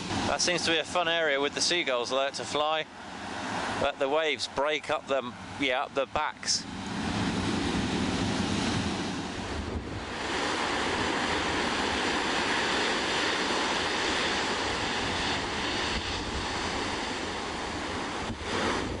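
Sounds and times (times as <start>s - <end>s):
surf breaking on beach: 0.0s - 19.0s
wind buffeting microphone: 6.6s - 19.0s.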